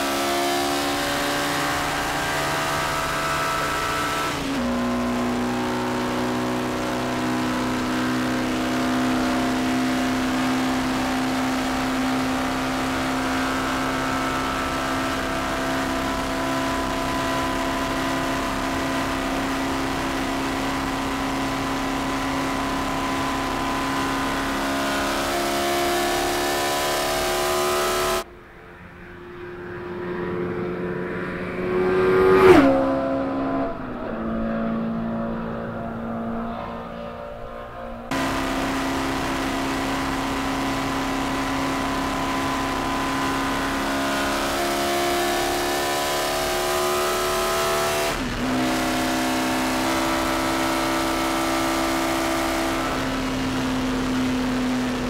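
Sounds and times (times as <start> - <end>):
car engine running at speed: 0.0 - 28.3, 29.4 - 55.0
car passing by: 28.6 - 38.0.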